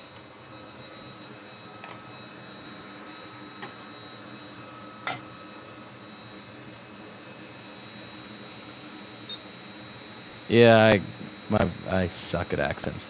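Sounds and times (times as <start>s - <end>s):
equipment fan hum: 0.0s - 13.0s
faint high whine: 0.0s - 13.0s.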